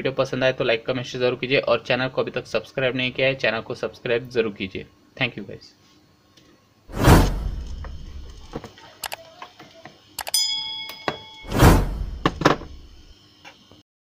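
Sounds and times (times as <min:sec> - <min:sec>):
thump with low boom: 0:06.9 - 0:08.4, 0:11.5 - 0:13.0
swishing thumps: 0:06.9 - 0:08.5, 0:11.5 - 0:13.1
sharp clicks: 0:07.6 - 0:09.2
short bell-like chime: 0:10.2 - 0:11.8.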